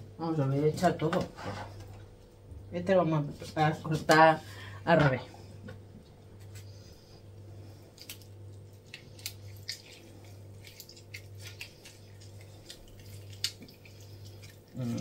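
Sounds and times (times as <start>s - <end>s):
steady low hum: 0.0s - 15.0s
lemon squelching and dripping: 8.0s - 15.0s.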